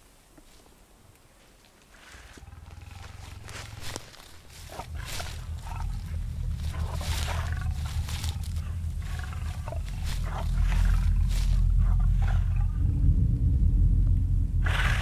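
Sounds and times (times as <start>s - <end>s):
heavy breathing: 2.0s - 12.8s
deep growling creature roar: 2.4s - 15.0s.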